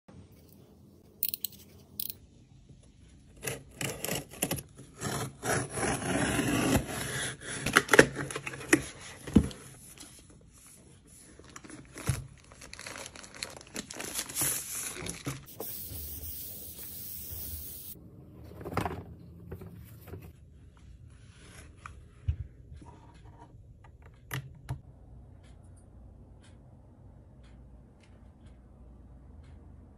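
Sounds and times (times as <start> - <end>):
packaging tearing and crinkling: 11.8 - 15.5.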